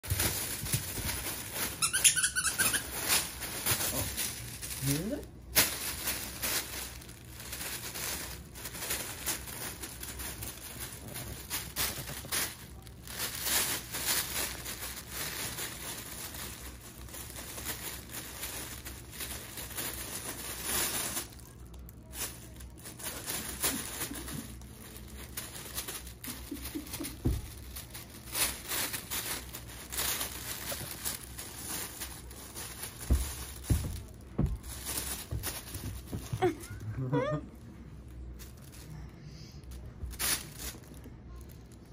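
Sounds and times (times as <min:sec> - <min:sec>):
space blanket crinkling: 0:00.0 - 0:37.2
soft thumps: 0:33.0 - 0:36.5.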